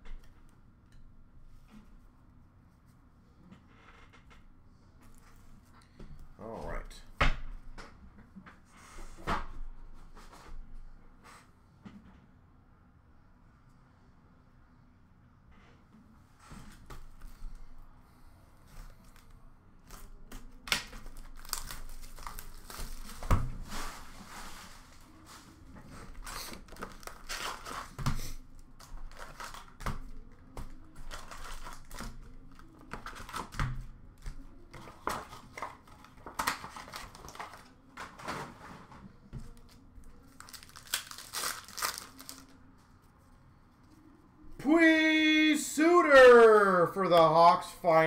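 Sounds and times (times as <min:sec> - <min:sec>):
shrink wrap crinkling and tearing: 0:18.9 - 0:24.1, 0:26.1 - 0:33.6, 0:34.8 - 0:37.8, 0:39.5 - 0:42.6.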